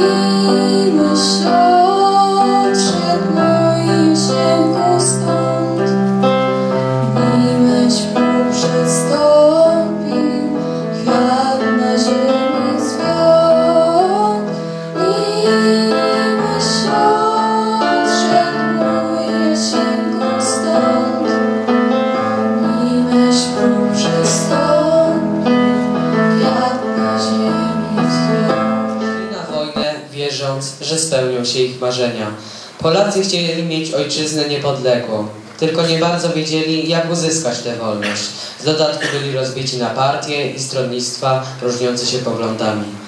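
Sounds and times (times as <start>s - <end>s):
girl singing into a microphone: 0.0s - 6.1s, 7.1s - 21.5s, 22.6s - 25.5s, 26.2s - 29.1s
piano accompaniment: 0.0s - 43.0s.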